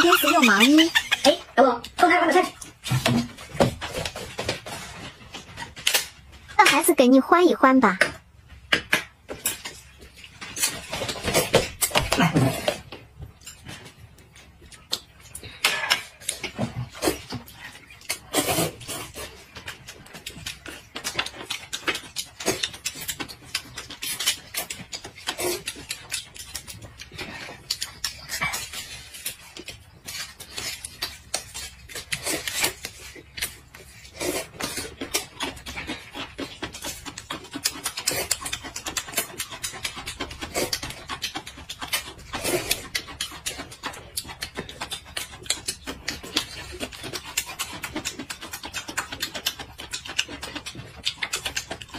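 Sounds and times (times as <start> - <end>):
people slurping noodles: 11.3 - 12.9, 18.3 - 19.3, 42.3 - 42.9.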